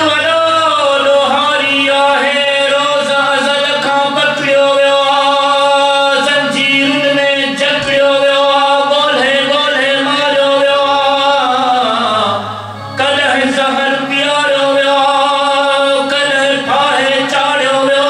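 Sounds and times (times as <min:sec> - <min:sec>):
man singing: 0:00.0 - 0:18.0
steady drone: 0:00.0 - 0:18.0.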